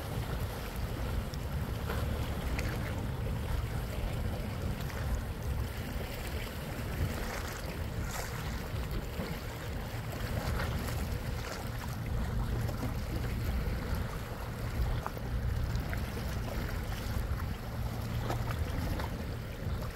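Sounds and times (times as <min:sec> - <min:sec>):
low boat rumble: 0:00.0 - 0:19.9
wind buffeting microphone: 0:00.0 - 0:19.9.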